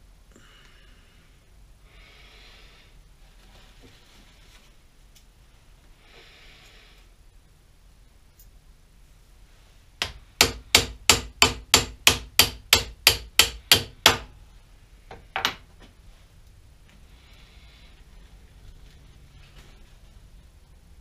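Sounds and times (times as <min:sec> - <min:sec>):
hammer striking metal: 0:10.0 - 0:14.3.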